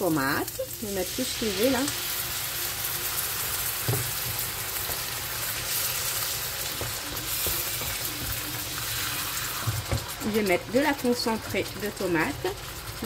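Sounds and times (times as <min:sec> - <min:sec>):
vegetables sizzling in a frying pan: 0:00.0 - 0:13.0
wooden spatula knocking: 0:06.7 - 0:08.5.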